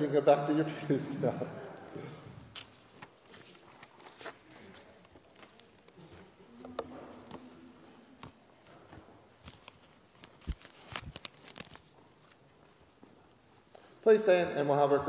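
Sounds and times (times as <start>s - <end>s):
faint footsteps and shuffling: 1.1s - 15.0s.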